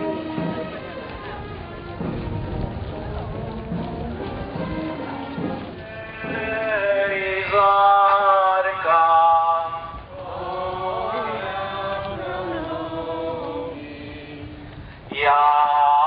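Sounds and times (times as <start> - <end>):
voices singing a slow hymn: 5.3 - 16.0.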